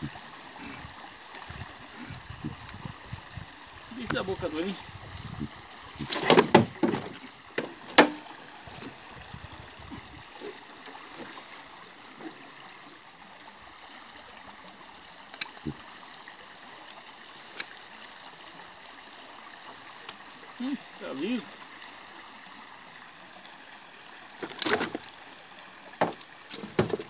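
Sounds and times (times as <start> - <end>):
river water rushing: 0.0 - 27.0
knocks and clanks on metal boat: 6.1 - 9.0, 26.0 - 27.0.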